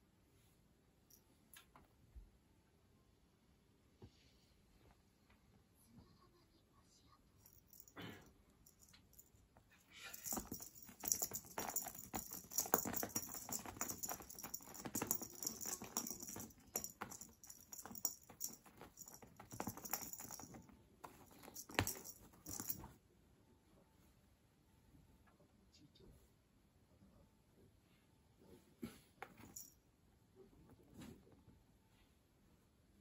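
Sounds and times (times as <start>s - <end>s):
string toy clicking and rustling on mats: 10.0s - 22.9s.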